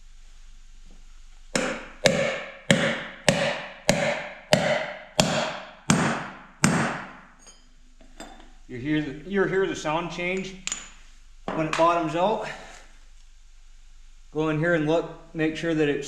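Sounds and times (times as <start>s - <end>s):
hammer striking metal: 1.6s - 8.4s.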